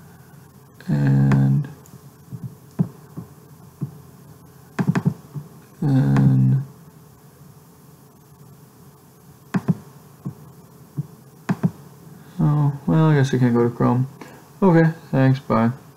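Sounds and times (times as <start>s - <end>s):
computer clicks and knocks: 4.8s - 5.2s, 9.5s - 9.8s, 11.5s - 11.8s
man's hesitation sound: 5.8s - 6.8s.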